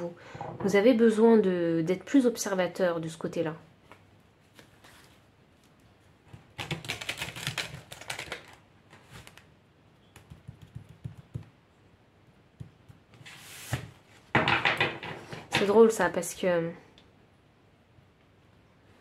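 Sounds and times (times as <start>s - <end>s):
cards being shuffled: 6.6s - 9.4s.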